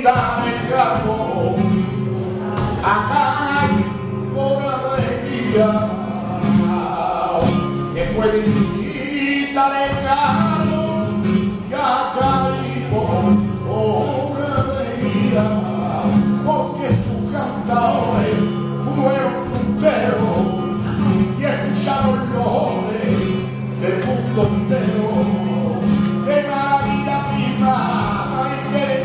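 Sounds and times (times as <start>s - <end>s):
flamenco guitar: 0.0s - 29.0s
man singing: 0.0s - 29.0s.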